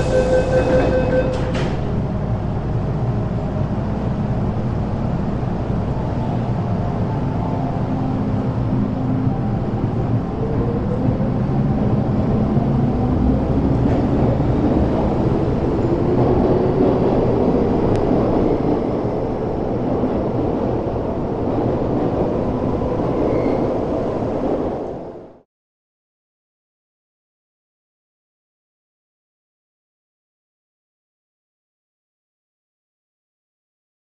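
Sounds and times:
wheels rumbling on rails: 0.0s - 25.4s.

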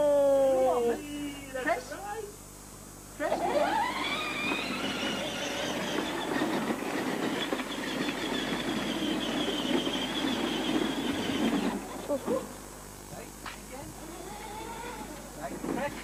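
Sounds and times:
toy motor whining: 3.2s - 12.4s, 14.0s - 15.2s.

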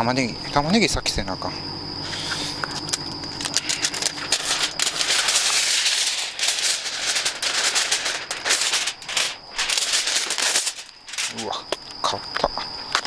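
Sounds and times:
aluminium foil crinkling: 2.8s - 11.6s.

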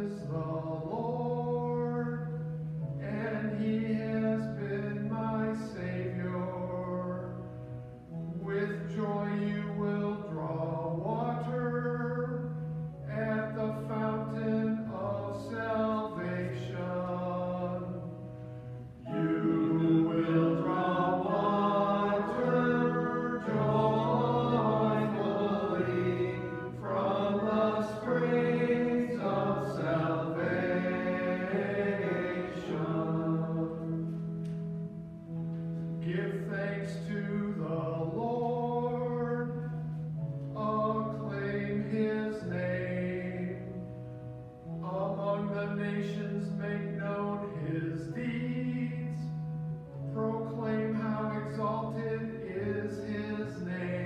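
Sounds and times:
choir singing in church: 0.0s - 54.0s
long held accompanying notes: 7.7s - 42.0s.

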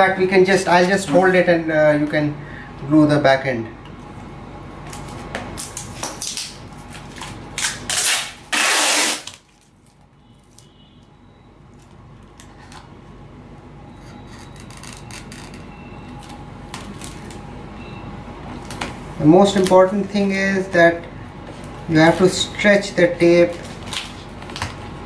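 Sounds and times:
adhesive tape pulled off roll: 7.6s - 9.7s.

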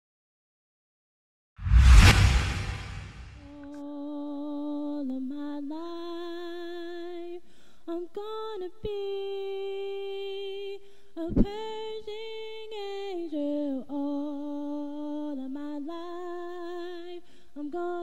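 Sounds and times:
woman singing unaccompanied: 3.9s - 18.0s.

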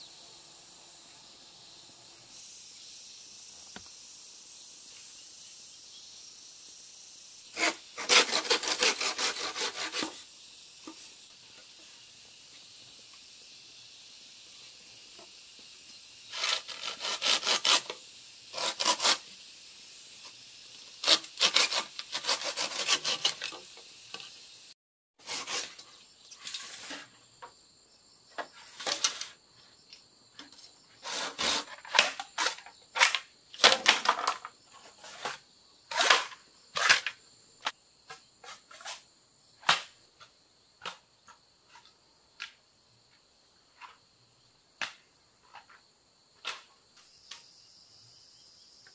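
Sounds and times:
crickets and insects chirping: 0.0s - 48.9s
machete scraping and striking bamboo: 7.6s - 11.2s, 16.3s - 19.3s, 20.2s - 24.4s, 25.2s - 27.2s, 28.4s - 29.4s, 30.4s - 40.0s.

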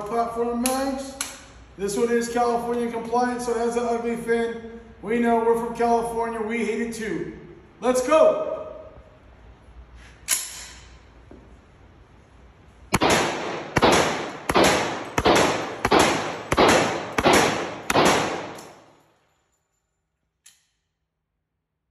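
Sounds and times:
gunshots echoing indoors: 12.9s - 19.5s.

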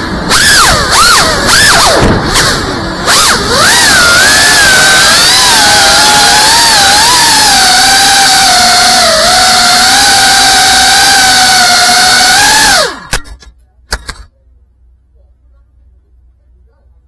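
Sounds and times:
drone motors whining: 0.0s - 13.5s.

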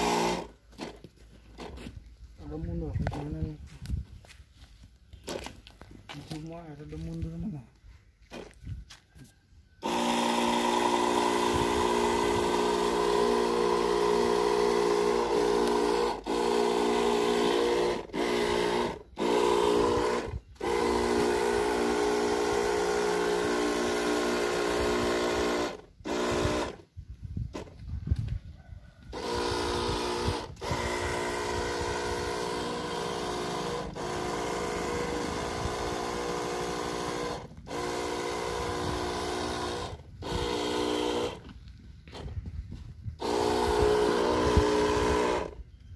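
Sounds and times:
sprayer motor hum: 0.0s - 1.8s, 9.8s - 26.9s, 29.1s - 42.4s, 43.2s - 45.6s.

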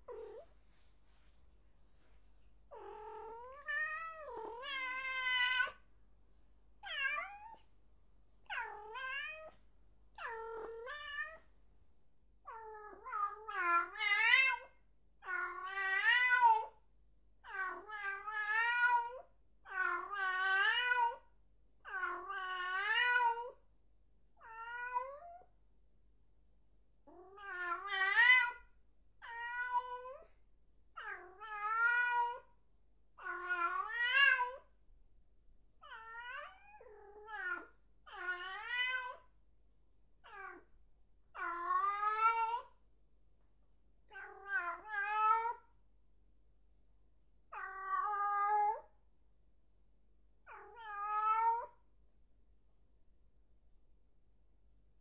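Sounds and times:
cat meowing: 2.7s - 5.8s, 6.8s - 7.6s, 8.5s - 9.6s, 10.2s - 11.4s, 24.4s - 25.4s, 29.2s - 30.3s, 31.0s - 32.5s, 35.8s - 39.3s, 40.2s - 40.7s, 41.4s - 42.8s, 50.5s - 51.8s.

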